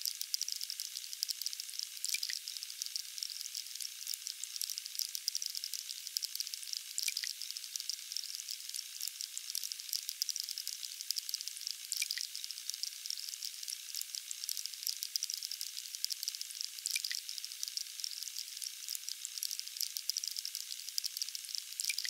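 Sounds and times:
fountain water trickling: 0.1s - 22.0s.

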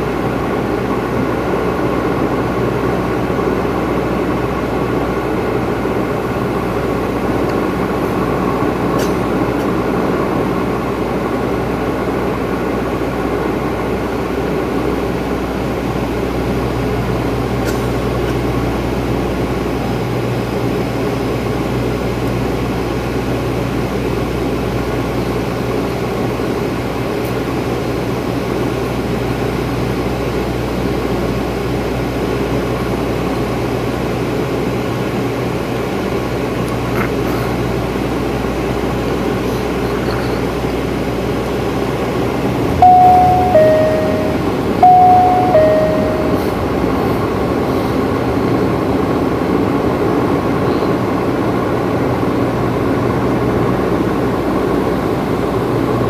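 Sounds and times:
turboprop engines droning: 40.5s - 49.9s
low even hum: 42.6s - 46.9s
cabin chime: 42.7s - 46.8s.

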